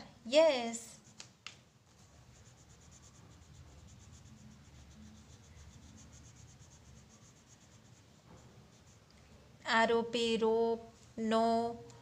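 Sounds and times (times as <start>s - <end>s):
pencil scribbling on paper: 0.9s - 9.1s.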